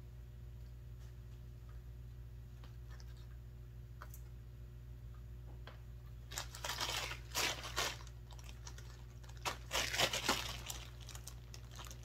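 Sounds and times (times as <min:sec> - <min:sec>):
plastic packaging crinkling: 0:06.3 - 0:12.0.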